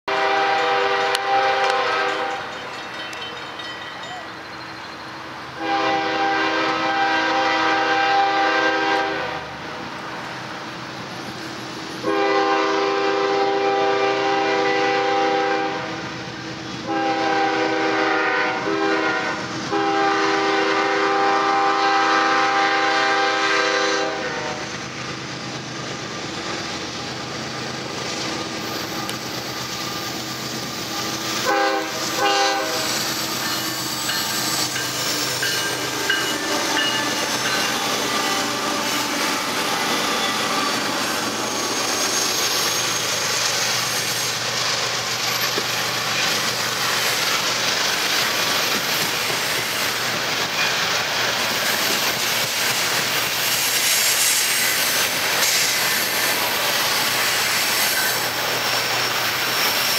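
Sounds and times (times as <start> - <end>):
locomotive air horn: 0.0 - 2.5, 5.6 - 9.6, 12.0 - 16.1, 16.8 - 24.7, 31.4 - 33.4.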